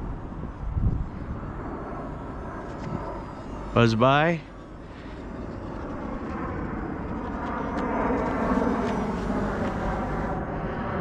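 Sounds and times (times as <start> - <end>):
airliner flying overhead: 0.0 - 11.0.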